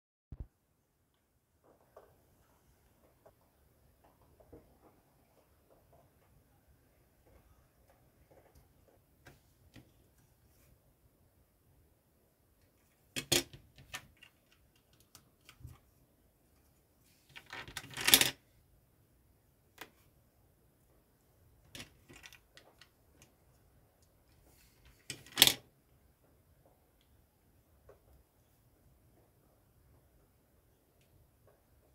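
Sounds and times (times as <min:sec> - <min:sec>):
plastic bricks clicking and snapping: 0:13.1 - 0:15.8, 0:17.3 - 0:18.4, 0:21.7 - 0:23.4, 0:24.9 - 0:25.7.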